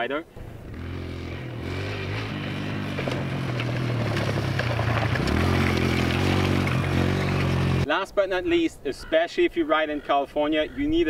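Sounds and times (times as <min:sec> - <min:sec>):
dirt bike engine running: 0:00.6 - 0:07.8.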